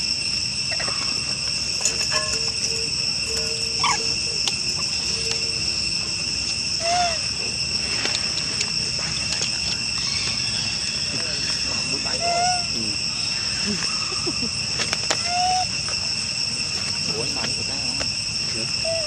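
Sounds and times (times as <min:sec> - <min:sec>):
insects droning: 0:00.0 - 0:19.0
short chirping calls: 0:02.2 - 0:14.4.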